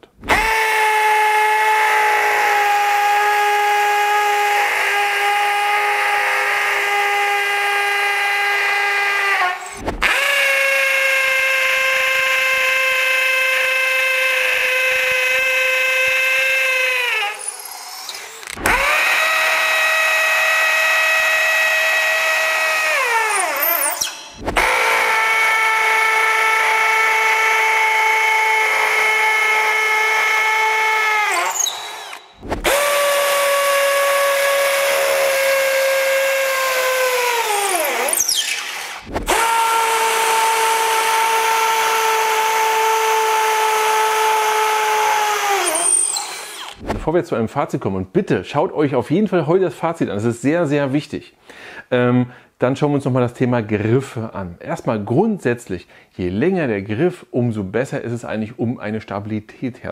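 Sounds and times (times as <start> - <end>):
hammer drill motor whining: 0.3 - 46.8.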